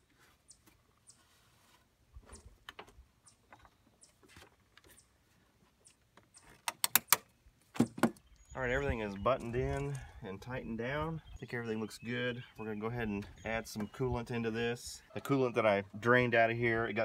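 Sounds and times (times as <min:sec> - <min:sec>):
plastic and metal parts clicking: 0:06.5 - 0:07.3
sharp loud clicks: 0:06.6 - 0:07.3.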